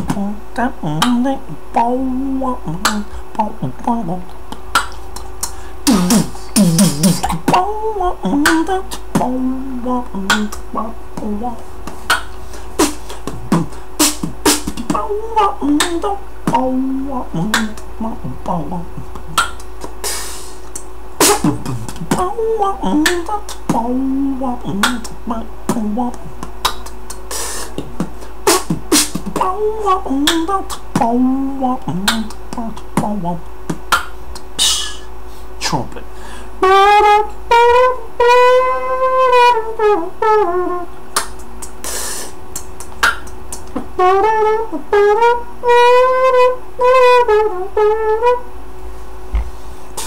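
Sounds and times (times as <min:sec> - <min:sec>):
beatbox kick and snare: 0:00.0 - 0:00.2, 0:02.8 - 0:03.6, 0:04.5 - 0:07.7, 0:08.3 - 0:09.4, 0:10.2 - 0:16.7, 0:17.4 - 0:17.9, 0:19.0 - 0:23.9, 0:24.7 - 0:31.2, 0:31.9 - 0:35.8, 0:41.1 - 0:44.4, 0:49.3 - 0:50.0
hummed vocal line: 0:00.0 - 0:48.6.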